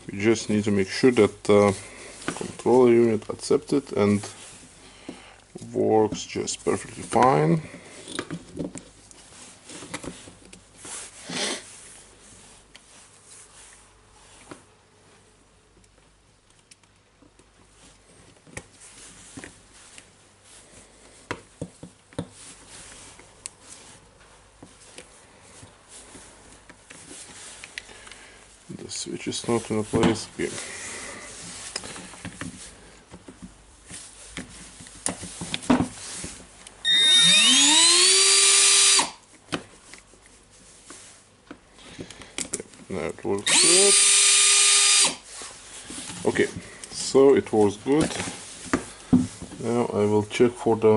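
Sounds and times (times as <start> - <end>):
gloves rustling: 0.0 - 36.9, 39.2 - 43.4, 45.2 - 50.9
drill motor whining: 36.8 - 39.2, 43.4 - 45.2.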